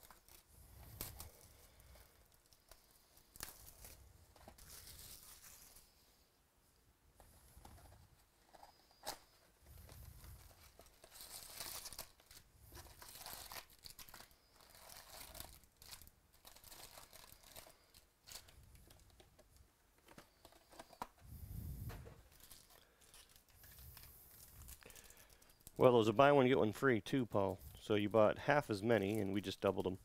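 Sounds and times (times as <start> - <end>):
foil packs crinkling: 9.9 - 19.2, 22.2 - 26.1, 28.1 - 30.0
plastic wrap tearing: 10.6 - 18.6.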